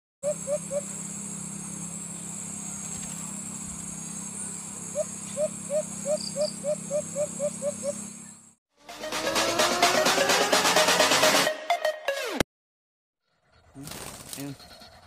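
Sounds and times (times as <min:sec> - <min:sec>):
dove hooting calls: 0:00.2 - 0:01.7, 0:04.2 - 0:08.4
steady high buzz: 0:00.2 - 0:11.4.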